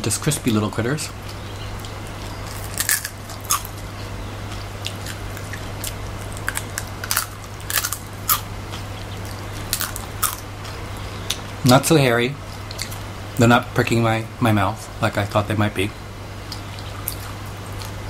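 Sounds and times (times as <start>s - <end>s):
steady low hum: 0.0s - 18.0s
crunchy chewing: 1.1s - 11.6s, 12.5s - 13.1s, 16.5s - 18.0s.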